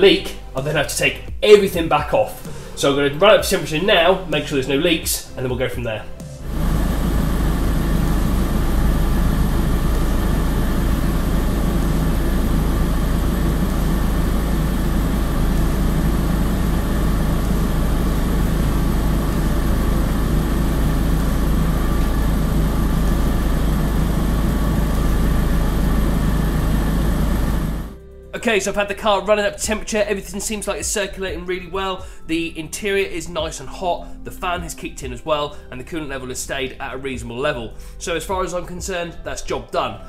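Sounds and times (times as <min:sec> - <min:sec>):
car engine idling: 0:06.2 - 0:28.0.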